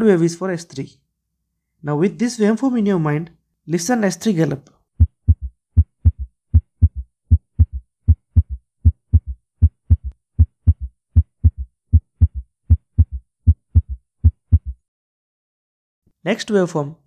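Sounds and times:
heartbeat with gallop rhythm: 5.0 - 14.9.

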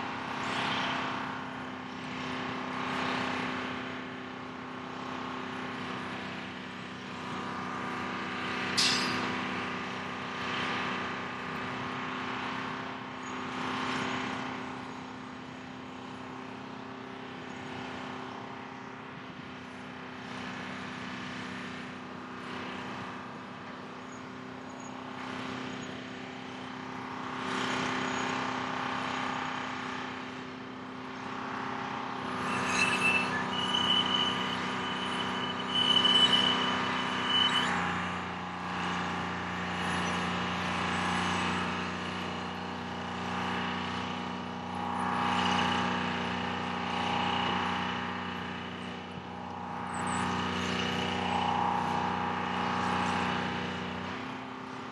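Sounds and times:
diesel engine running: 0.0 - 54.9.

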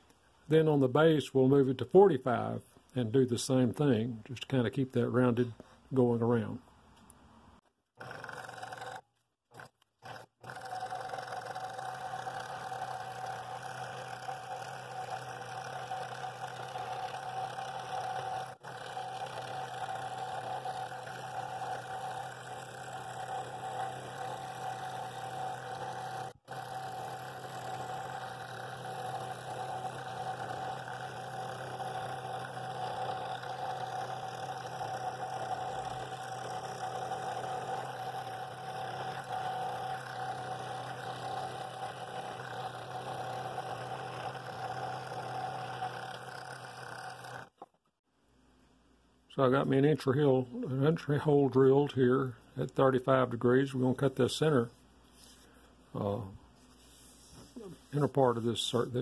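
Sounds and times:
scroll saw cutting wood: 8.0 - 47.7.

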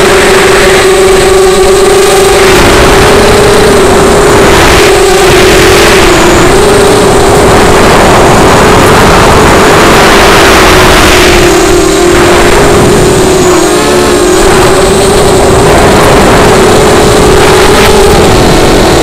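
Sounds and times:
drone motors whining: 0.0 - 19.0
wind rushing across microphone: 0.0 - 19.0.

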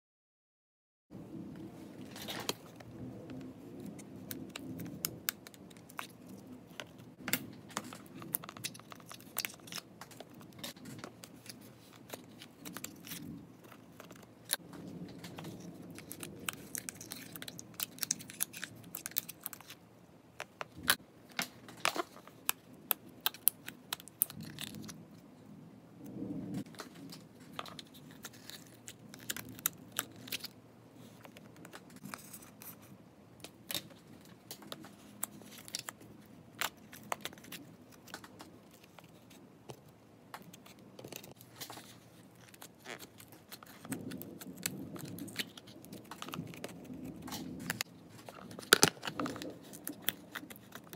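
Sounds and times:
plastic clicks and crackles: 2.0 - 19.8, 20.4 - 25.2, 26.1 - 50.9.

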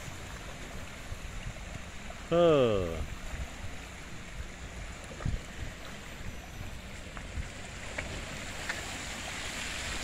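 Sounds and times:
wind buffeting microphone: 3.0 - 8.6
water running over rocks: 6.8 - 10.0.

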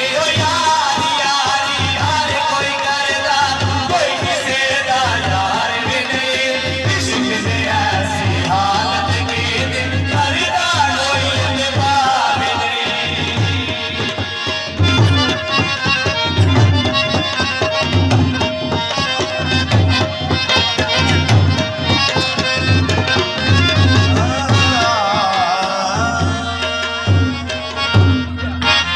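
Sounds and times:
harmonium notes: 0.0 - 28.9
man singing amplified: 0.0 - 28.9
tabla rhythm: 0.0 - 28.9.

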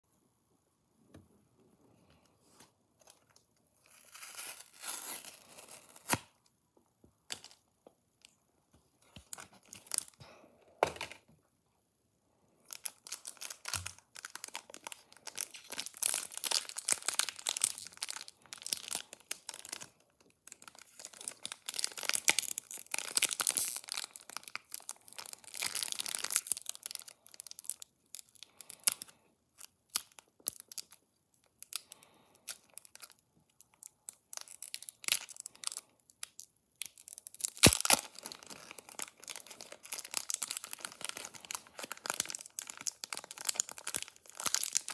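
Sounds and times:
packaging tearing and crinkling: 3.8 - 6.4, 12.7 - 31.0, 31.6 - 44.9.

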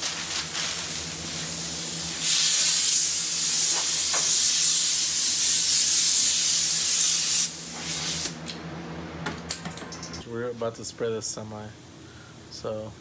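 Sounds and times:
compressed air hissing from air gun: 0.5 - 8.4.

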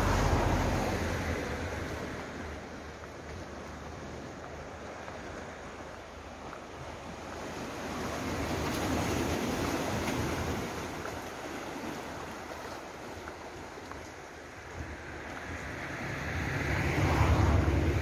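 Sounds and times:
waves washing against rocky shore: 0.0 - 18.0.

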